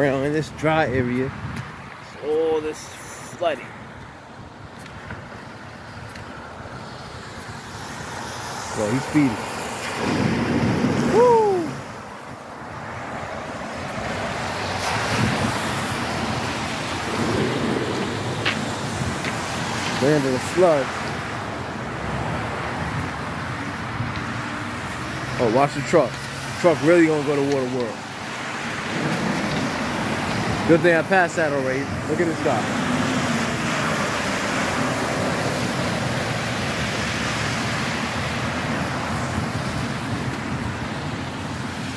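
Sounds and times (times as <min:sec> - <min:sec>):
cars splashing through floodwater: 0:00.0 - 0:41.9
man whooping: 0:11.0 - 0:11.9.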